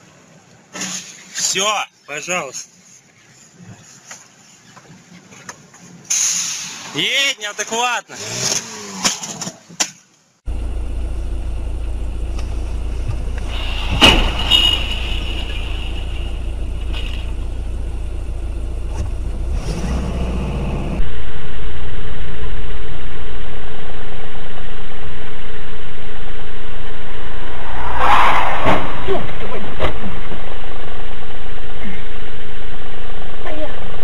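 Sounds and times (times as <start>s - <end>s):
vehicle engine and road rumble: 7.6s - 21.2s, 25.9s - 34.0s.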